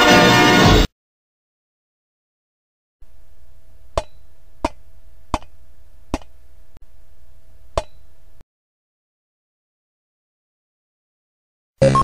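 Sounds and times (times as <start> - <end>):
background hiss and hum: 3.0 - 8.4.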